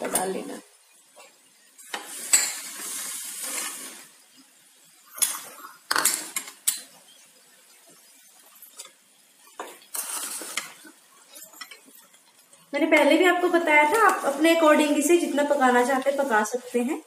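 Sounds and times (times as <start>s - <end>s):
spatula scraping vegetables in pan: 1.2s - 4.2s, 8.0s - 16.9s.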